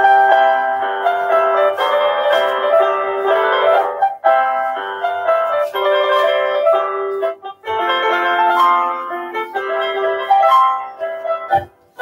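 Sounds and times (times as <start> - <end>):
piano playing chords and melody: 0.0 - 12.0.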